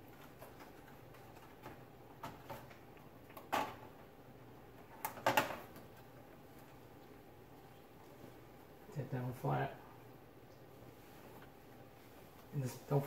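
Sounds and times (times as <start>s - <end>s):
clicks and knocks of parts: 4.8s - 5.9s.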